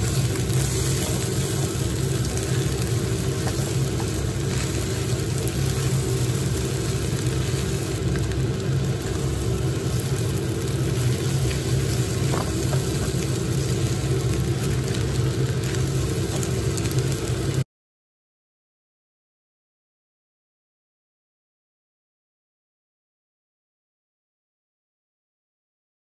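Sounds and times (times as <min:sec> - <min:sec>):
spatula scraping pan: 0:00.0 - 0:07.8
low mechanical hum: 0:00.0 - 0:17.6.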